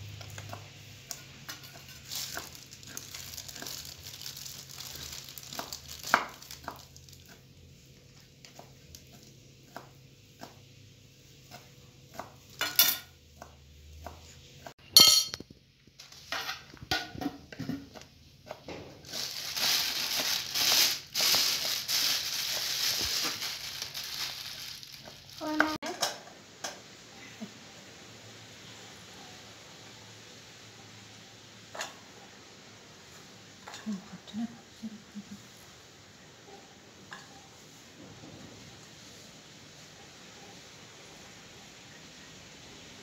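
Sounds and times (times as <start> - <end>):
utensils clinking on glass bowl: 12.6 - 13.1, 14.9 - 15.4.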